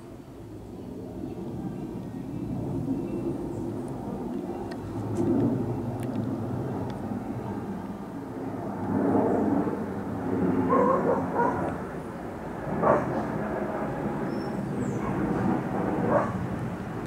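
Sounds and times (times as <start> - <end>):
jet airliner passing overhead: 0.0 - 17.0
dog barking: 10.7 - 11.8, 12.8 - 13.2, 16.1 - 16.4.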